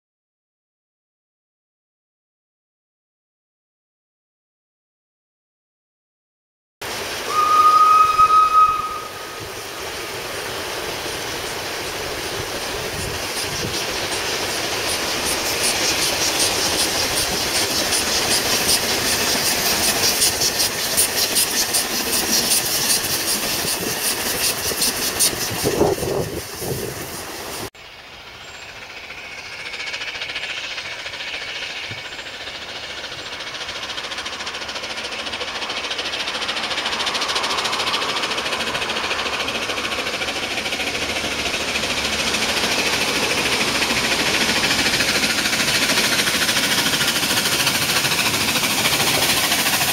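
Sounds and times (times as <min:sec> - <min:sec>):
steam locomotive rhythmic beat: 0:07.0 - 0:27.7, 0:28.8 - 0:49.9
steam whistle blast: 0:07.2 - 0:09.9.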